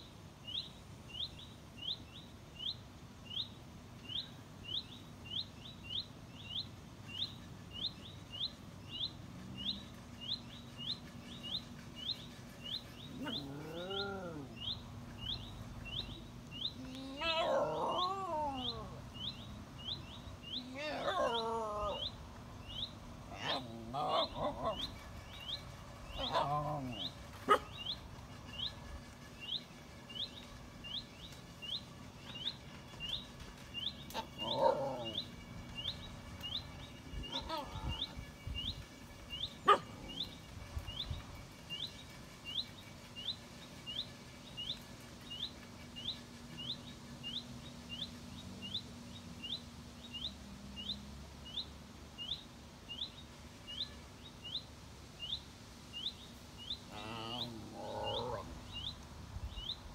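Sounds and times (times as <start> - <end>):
bird chirping: 0.0 - 59.9
dogs making grumbling noises: 13.1 - 14.6, 16.8 - 18.9, 26.2 - 27.2, 34.2 - 35.2, 56.9 - 58.6.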